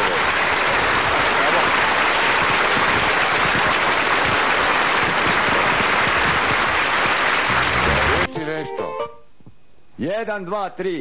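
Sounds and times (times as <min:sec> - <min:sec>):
steady dense hiss: 0:00.0 - 0:11.0.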